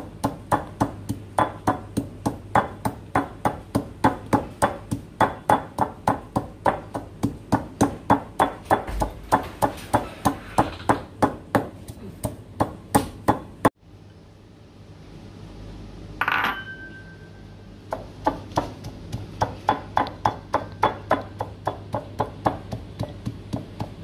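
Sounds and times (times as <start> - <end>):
knife chopping on cutting board: 0.2 - 13.5.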